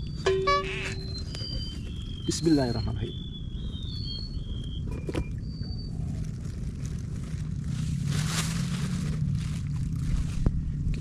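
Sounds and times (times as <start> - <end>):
whistled bird notes: 0.0 - 6.3
low steady rumble: 0.0 - 11.0.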